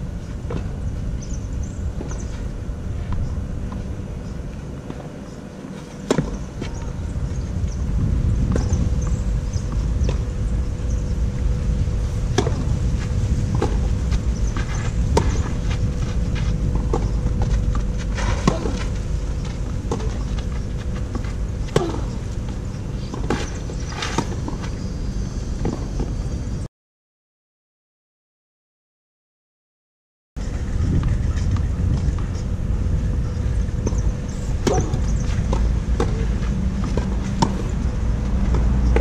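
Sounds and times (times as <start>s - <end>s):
steady low rumble: 0.0s - 26.7s, 30.4s - 39.0s
racket striking tennis ball: 12.3s - 12.7s, 14.6s - 22.2s, 34.6s - 37.7s.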